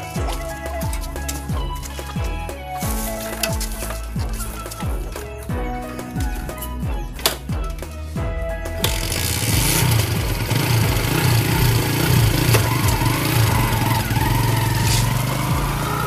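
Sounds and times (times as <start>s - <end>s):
motorcycle engine running: 8.8s - 16.0s.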